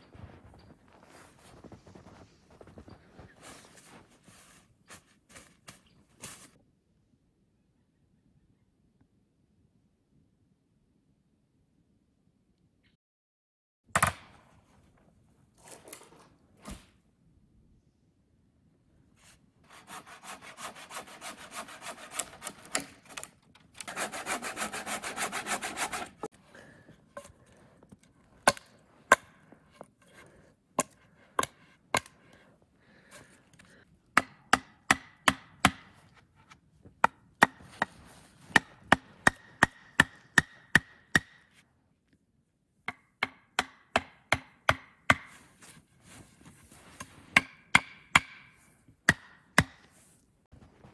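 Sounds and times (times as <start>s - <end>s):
saw rasping through wood: 19.7s - 26.4s
chopping strikes on wooden pole: 34.2s - 36.0s, 37.0s - 41.4s, 42.9s - 45.3s, 47.4s - 49.9s.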